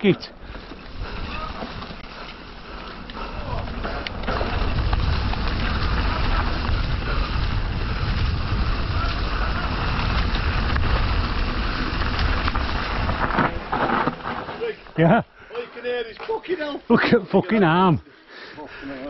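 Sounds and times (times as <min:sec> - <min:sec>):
bike tyres rolling on dirt: 0:00.0 - 0:18.0
wind rumbling on microphone: 0:00.4 - 0:14.4.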